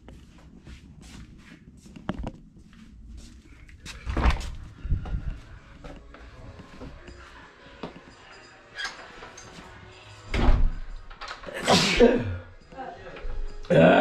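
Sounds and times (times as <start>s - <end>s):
footsteps walking: 0.0s - 8.1s
door thumping open: 10.3s - 10.8s.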